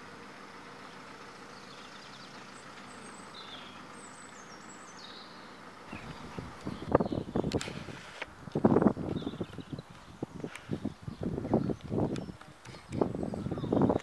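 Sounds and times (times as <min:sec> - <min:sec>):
faint high bird chirps: 0:00.9 - 0:07.6, 0:09.1 - 0:10.2, 0:10.8 - 0:14.0.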